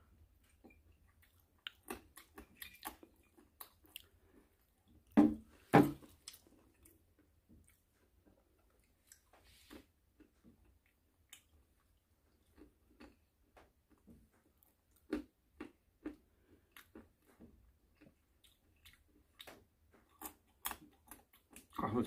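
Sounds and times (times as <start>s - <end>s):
person chewing nuts: 0.1s - 5.2s, 6.0s - 22.0s.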